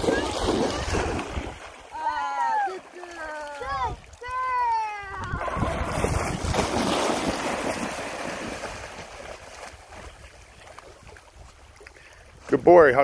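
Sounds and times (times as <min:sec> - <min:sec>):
dogs splashing through water: 0:00.0 - 0:12.6
wind buffeting microphone: 0:03.6 - 0:11.7.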